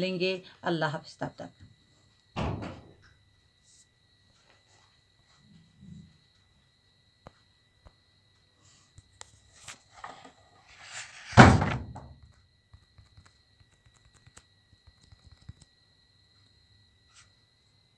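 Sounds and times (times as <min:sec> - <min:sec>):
book thudding on table: 0:10.0 - 0:12.2.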